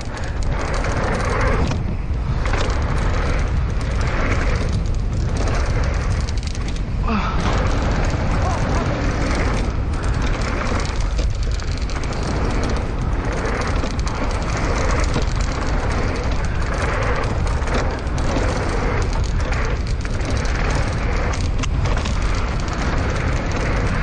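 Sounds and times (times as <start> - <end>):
bike tyres crunching over dirt: 0.0 - 24.0
wind rushing over microphone: 0.0 - 24.0.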